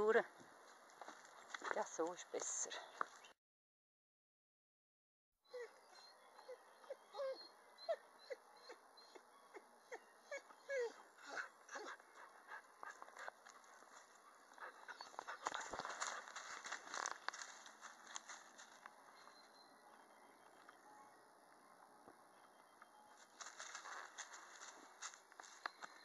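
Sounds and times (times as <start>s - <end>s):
puppy whining: 5.5s - 13.3s, 14.6s - 17.2s
rustling: 14.8s - 18.9s, 23.3s - 25.7s
footsteps on gravel: 15.0s - 18.9s, 23.3s - 26.0s.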